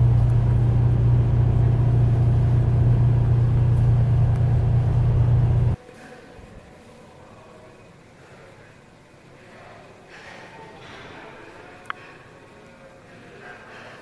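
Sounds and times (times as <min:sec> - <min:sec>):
train interior drone: 0:00.0 - 0:05.8.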